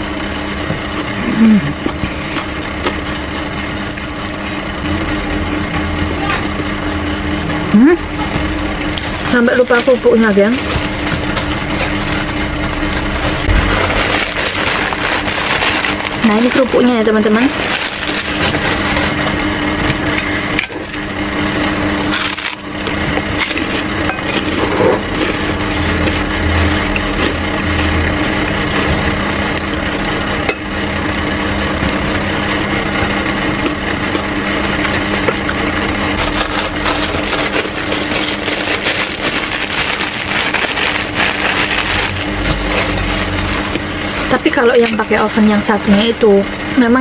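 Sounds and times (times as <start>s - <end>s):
steady low hum: 0.0s - 47.0s
cracker cracking and crunching: 10.6s - 16.8s, 17.4s - 19.4s, 22.0s - 26.1s, 36.2s - 44.3s.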